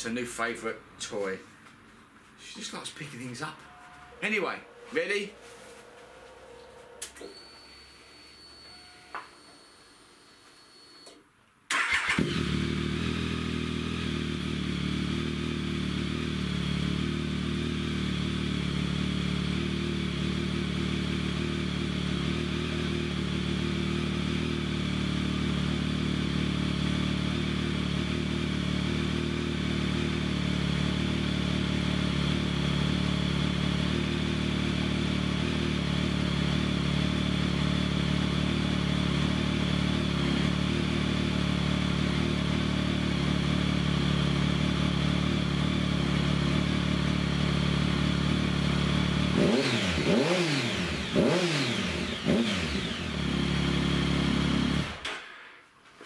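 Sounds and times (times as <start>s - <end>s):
motorcycle engine starting and idling: 11.7s - 55.4s.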